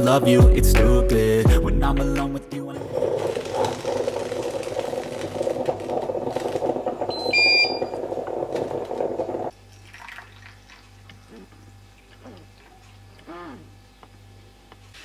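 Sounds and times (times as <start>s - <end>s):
moka pot gurgling and sputtering: 2.7s - 9.5s.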